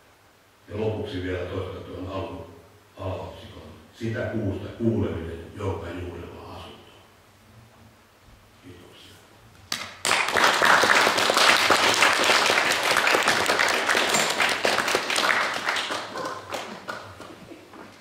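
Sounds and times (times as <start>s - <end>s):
audience applauding: 9.7s - 18.0s.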